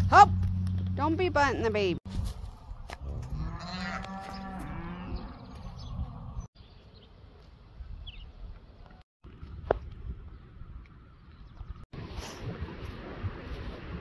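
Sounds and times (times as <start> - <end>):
outdoor background: 0.0 - 14.0
cow mooing: 3.2 - 5.5.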